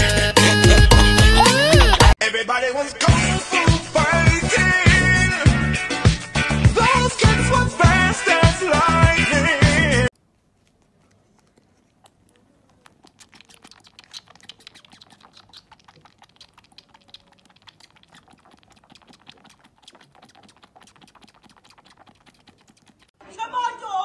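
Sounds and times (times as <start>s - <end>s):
kitten suckling wet clicks: 10.1s - 23.2s.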